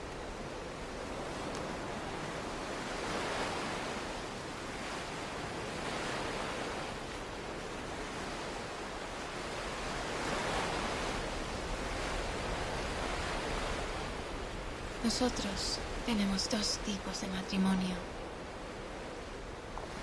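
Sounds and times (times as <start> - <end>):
waves breaking on beach: 0.0 - 20.0.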